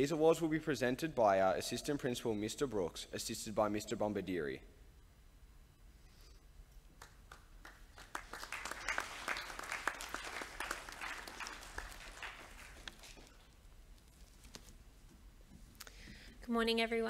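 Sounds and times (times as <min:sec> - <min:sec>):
audience applause: 0:07.0 - 0:13.5.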